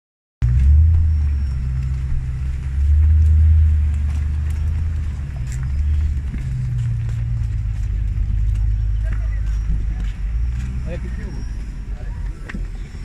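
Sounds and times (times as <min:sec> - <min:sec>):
car engines rumbling: 0:00.4 - 0:13.0.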